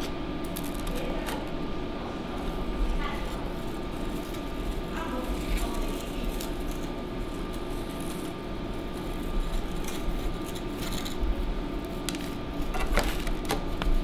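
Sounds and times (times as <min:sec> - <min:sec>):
steady low hum: 0:00.0 - 0:14.0
faint scrapes and crackles: 0:02.4 - 0:13.4.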